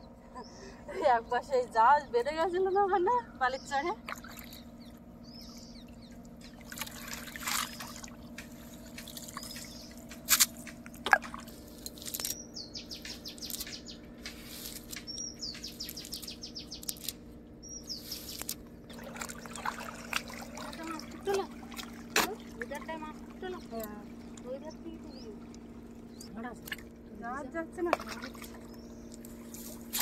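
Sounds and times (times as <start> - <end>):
faint steady hum: 0.0 - 30.0
bird calling: 2.2 - 21.5, 28.0 - 30.0
river water splashing and trickling: 3.8 - 30.0.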